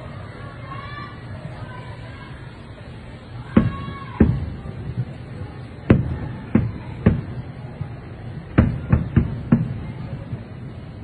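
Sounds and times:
firework shells booming: 0:05.8 - 0:07.5, 0:08.5 - 0:10.4.

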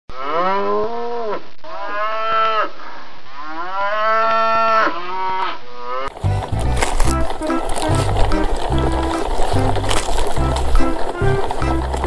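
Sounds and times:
cow mooing: 0:00.1 - 0:02.8.

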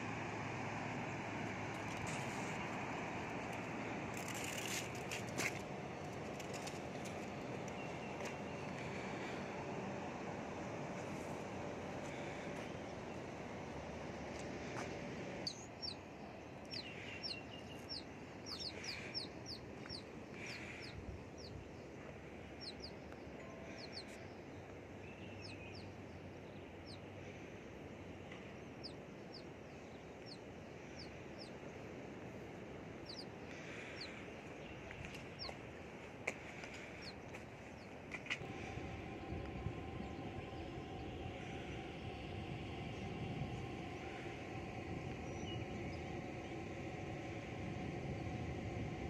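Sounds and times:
birds chirping: 0:01.1 - 0:27.4, 0:28.3 - 0:49.0
lower bird calls: 0:15.4 - 0:21.7, 0:33.0 - 0:35.6, 0:36.4 - 0:46.7
steady rushing noise: 0:24.8 - 0:49.0.

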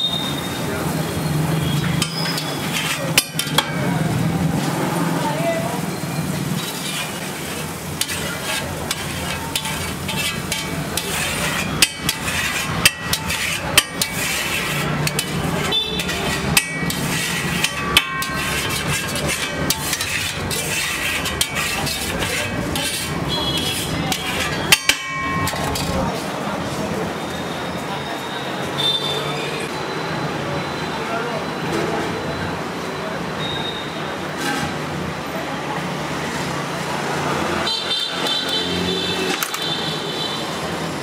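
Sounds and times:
spatula scraping metal griddle: 0:01.6 - 0:26.4, 0:34.3 - 0:34.8
metal-on-metal knocks: 0:24.7 - 0:25.9.

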